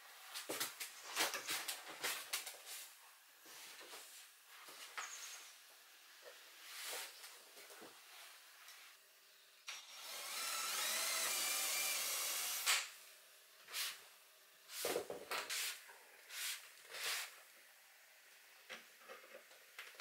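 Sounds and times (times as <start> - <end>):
cordless drill whining: 9.7 - 12.9
drill stopping with a click: 9.7 - 12.9.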